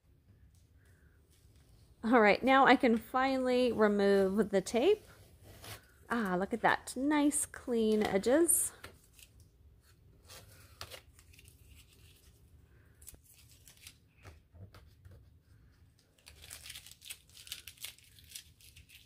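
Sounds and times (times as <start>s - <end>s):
paper tape tearing and rustling: 10.2s - 14.2s, 16.2s - 19.0s.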